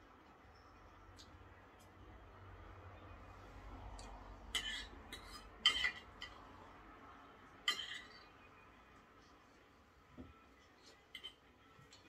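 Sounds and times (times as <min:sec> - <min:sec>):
knife and fork clinking on plate: 0:04.5 - 0:06.4, 0:07.6 - 0:08.3, 0:10.8 - 0:11.5.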